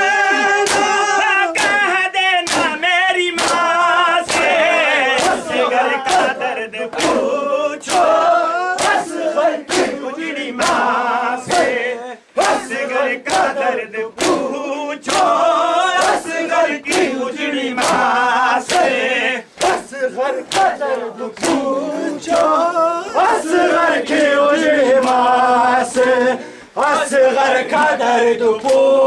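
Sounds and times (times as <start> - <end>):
men chanting a lament: 0.0 - 29.0
hands slapping bare chests: 0.6 - 11.8, 12.4 - 15.4, 16.0 - 17.2, 17.8 - 19.0, 19.6 - 22.7, 23.7 - 25.3.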